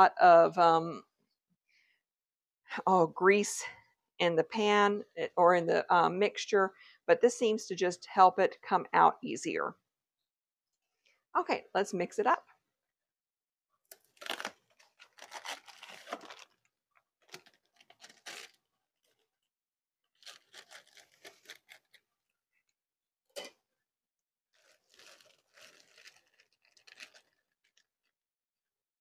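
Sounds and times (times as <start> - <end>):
plastic pouch tearing and crinkling: 13.9 - 19.2, 20.1 - 22.0, 24.6 - 28.2.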